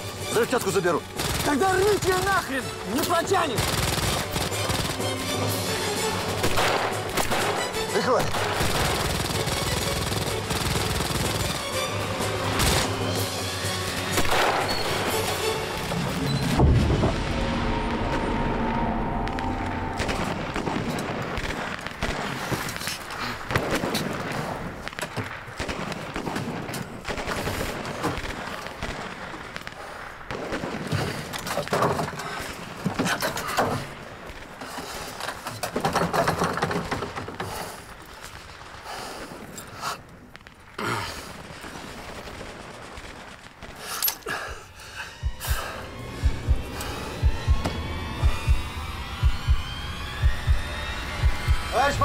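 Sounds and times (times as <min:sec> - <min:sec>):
gunfire in rapid bursts: 0:01.2 - 0:02.4, 0:03.4 - 0:05.3, 0:06.2 - 0:11.8, 0:14.2 - 0:15.1, 0:23.4 - 0:31.3, 0:41.3 - 0:43.9.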